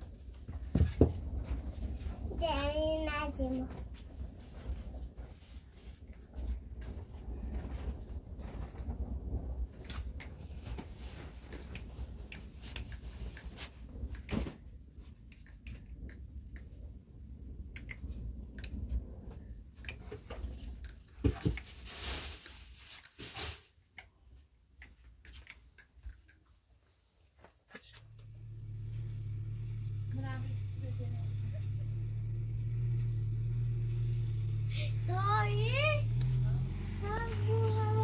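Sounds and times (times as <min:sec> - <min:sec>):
objects being handled: 0:19.8 - 0:28.1
low steady hum: 0:26.5 - 0:38.0.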